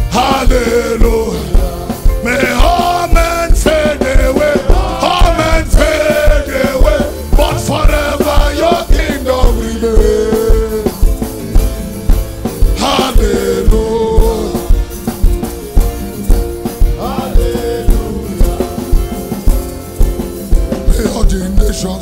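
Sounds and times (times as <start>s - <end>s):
person singing: 0.0s - 11.8s, 12.8s - 15.0s, 17.0s - 19.4s
steady drum beat: 0.0s - 22.0s
sustained keyboard chords: 0.0s - 22.0s.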